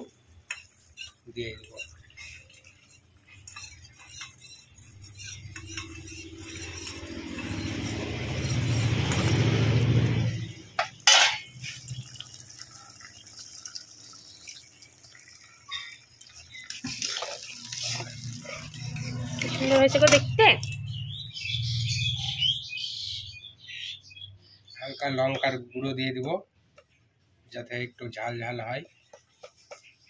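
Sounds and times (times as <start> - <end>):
metal spatula scraping wok: 0.0 - 11.9, 15.8 - 20.4
liquid hissing in hot wok: 11.5 - 19.0.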